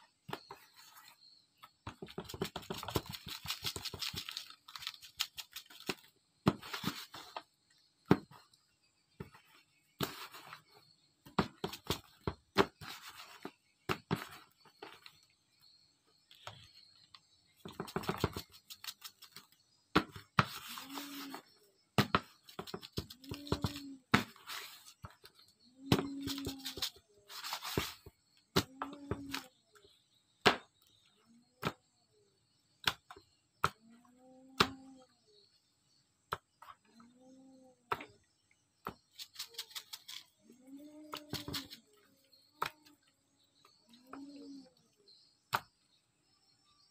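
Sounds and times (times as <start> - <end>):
plastic packet crinkling: 3.1 - 5.9.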